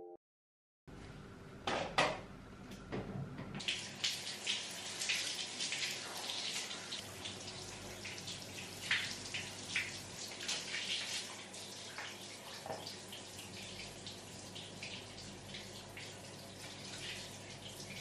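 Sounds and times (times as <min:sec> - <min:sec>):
water splashing on person: 0:03.6 - 0:13.9.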